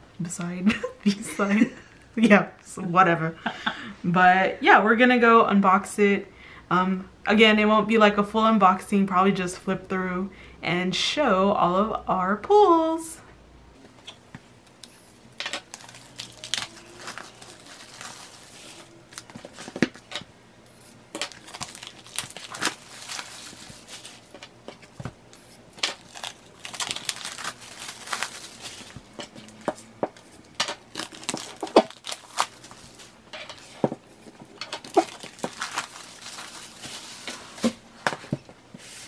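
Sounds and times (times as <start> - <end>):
plastic shrink wrap crinkling: 14.1 - 37.9.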